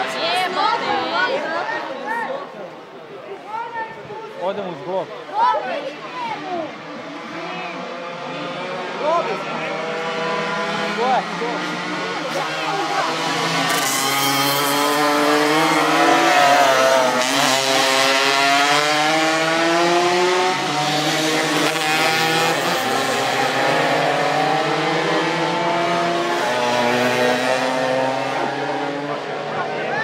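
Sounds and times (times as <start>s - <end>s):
mopeds racing past: 7.1s - 30.0s.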